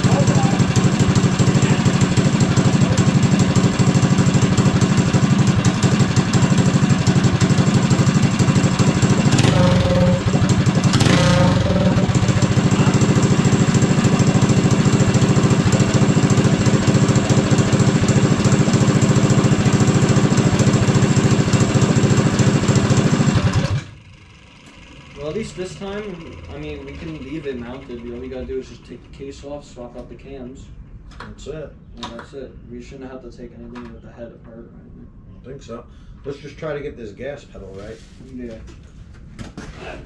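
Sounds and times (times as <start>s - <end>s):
go-kart engine running: 0.0s - 28.3s.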